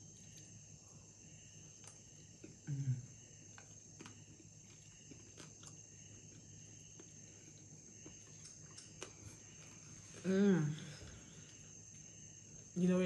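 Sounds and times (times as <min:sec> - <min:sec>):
person chewing noodles: 0:03.4 - 0:10.0.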